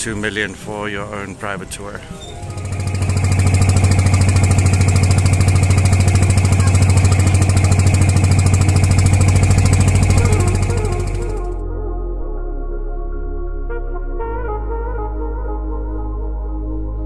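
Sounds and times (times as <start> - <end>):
music: 0.0 - 3.2, 10.0 - 17.0
boat engine throbbing: 0.0 - 11.7.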